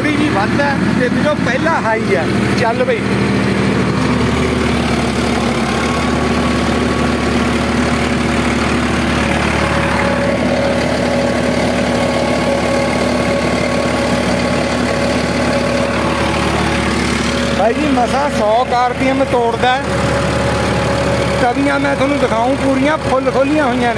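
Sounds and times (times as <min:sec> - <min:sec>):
tractor diesel engine running: 0:00.0 - 0:23.9.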